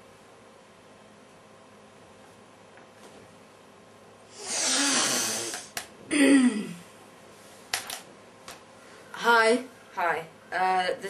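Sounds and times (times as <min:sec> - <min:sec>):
woman sighing: 0:06.1 - 0:06.8.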